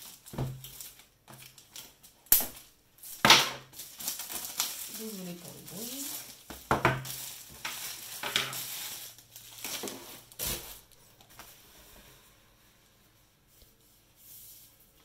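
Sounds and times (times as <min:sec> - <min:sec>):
plastic wrapping crinkling: 0:00.0 - 0:11.6.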